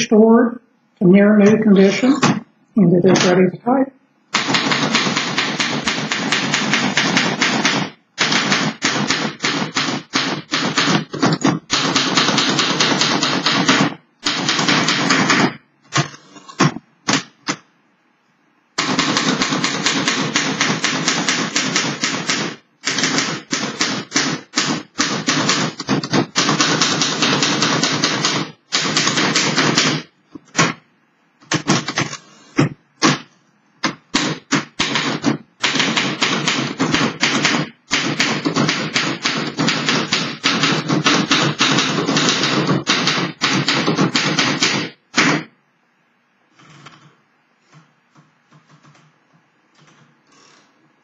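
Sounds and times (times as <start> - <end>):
manual typewriter typing: 4.3 - 17.6, 18.8 - 30.8, 31.4 - 32.2, 33.8 - 45.4.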